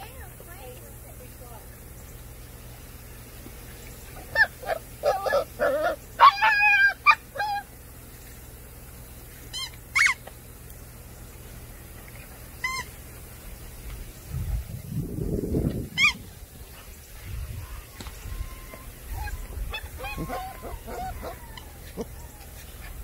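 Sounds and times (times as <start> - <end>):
high-pitched animal calls: 4.2 - 7.7, 9.5 - 10.3, 12.6 - 13.0, 15.9 - 16.4, 17.2 - 23.0.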